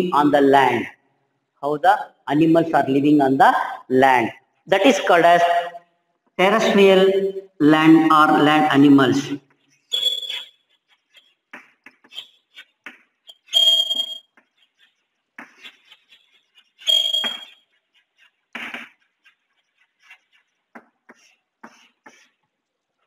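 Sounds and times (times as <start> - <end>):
high-pitched chalk squeaks: 8.3 - 23.0
chalk tapping and scraping: 9.4 - 23.0.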